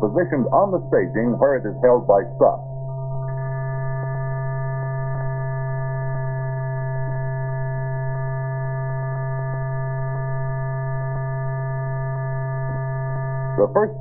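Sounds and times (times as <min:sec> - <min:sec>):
electrical hum: 0:00.0 - 0:14.0.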